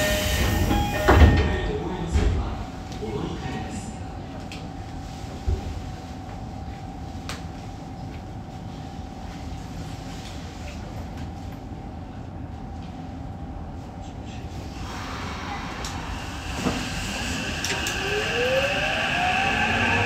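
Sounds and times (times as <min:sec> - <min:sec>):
subway train hum: 0:00.0 - 0:20.0.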